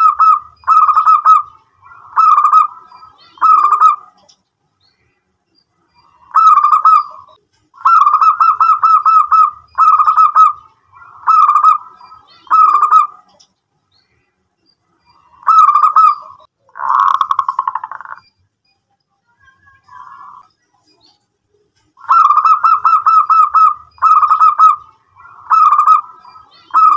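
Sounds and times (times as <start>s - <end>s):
dove cooing: 0.0s - 4.2s, 6.2s - 13.4s, 15.2s - 18.2s, 22.0s - 26.9s.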